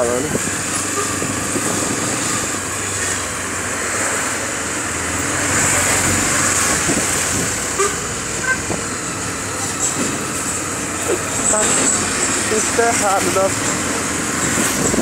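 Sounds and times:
wind on microphone: 0:00.2 - 0:02.6, 0:06.1 - 0:07.7, 0:14.1 - 0:15.0.

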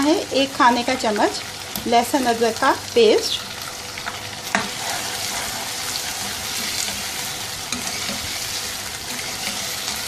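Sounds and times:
chicken sizzling in hot oil: 0:00.0 - 0:10.0
spatula scraping a wok: 0:04.4 - 0:10.0.

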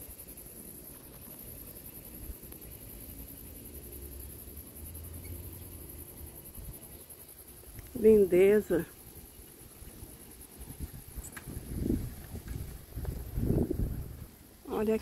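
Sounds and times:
insects chirring: 0:00.0 - 0:15.0.

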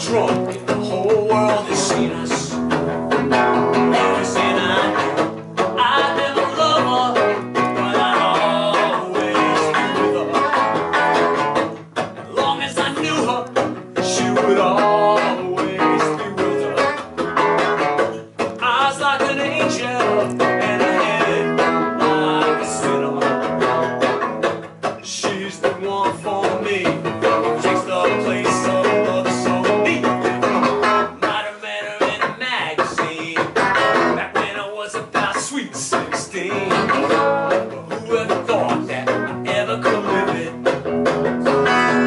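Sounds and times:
strummed guitar: 0:00.0 - 0:42.0.

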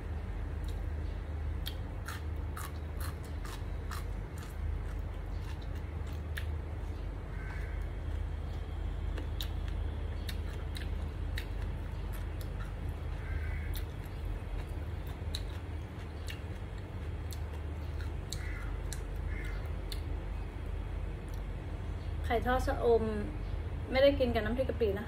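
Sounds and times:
steady low hum: 0:00.0 - 0:25.0
chewing with lip smacks: 0:01.6 - 0:20.1.

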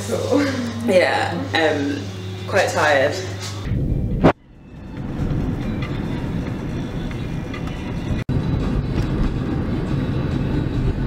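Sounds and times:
car engine and road rumble: 0:03.7 - 0:11.0.

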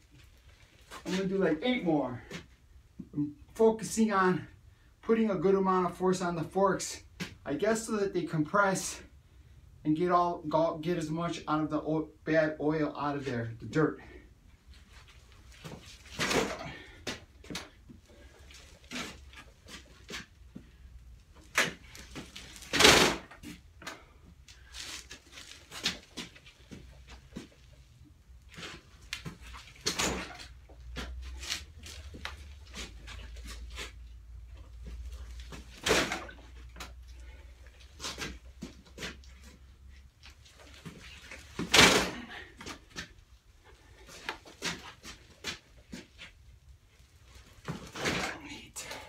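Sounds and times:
man breathing hard: 0:16.6 - 0:17.3.

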